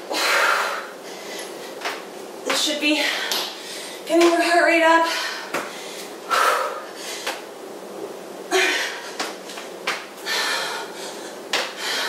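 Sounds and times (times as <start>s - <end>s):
woman breathing hard: 0.0s - 1.8s, 3.0s - 4.1s, 5.0s - 7.4s, 8.5s - 9.3s, 10.2s - 12.0s.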